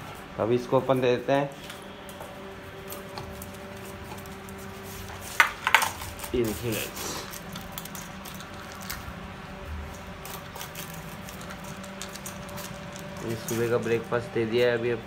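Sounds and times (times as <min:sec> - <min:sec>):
metal bowl clanking on concrete: 0:05.3 - 0:06.6
puppy eating kibble: 0:05.4 - 0:09.2, 0:09.8 - 0:13.8.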